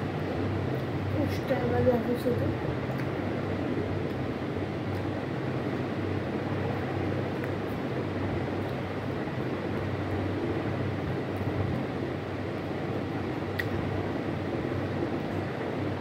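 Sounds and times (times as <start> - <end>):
air conditioner humming: 0.0 - 16.0.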